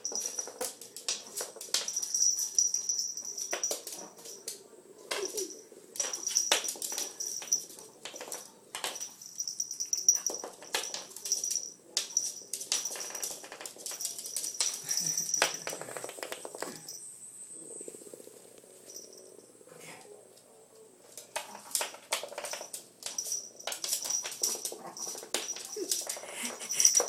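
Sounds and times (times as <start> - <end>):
dog claws clicking on floorboards: 21.1 - 27.0.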